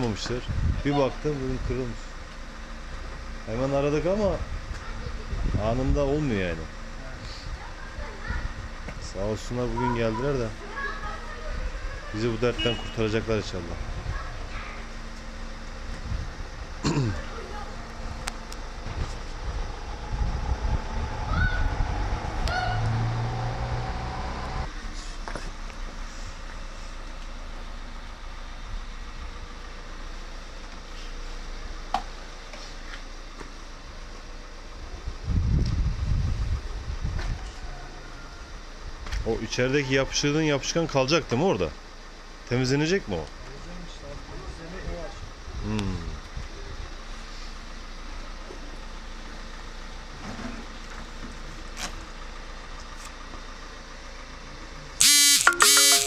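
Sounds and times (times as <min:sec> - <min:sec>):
engine idling: 0:00.0 - 0:35.4, 0:36.5 - 0:56.0
loud sound with pitched overtones: 0:55.0 - 0:56.0.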